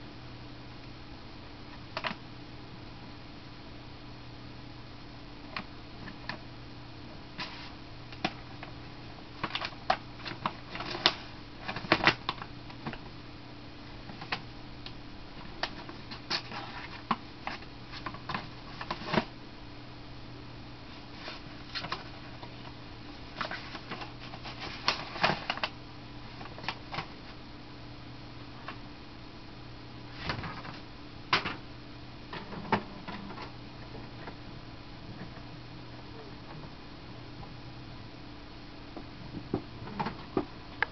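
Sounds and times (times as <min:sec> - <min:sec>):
steady low hum: 0:00.0 - 0:40.9
paper crinkling and rustling: 0:07.4 - 0:08.8, 0:09.4 - 0:13.0, 0:15.4 - 0:19.3, 0:20.9 - 0:27.4.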